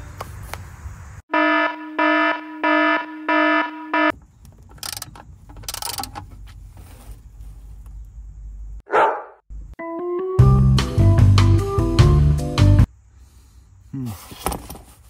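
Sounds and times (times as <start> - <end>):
electronic alarm beeping: 1.3 - 4.1.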